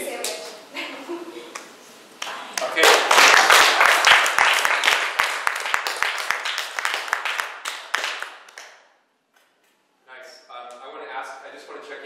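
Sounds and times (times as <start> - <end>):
small audience applauding: 2.2 - 9.0.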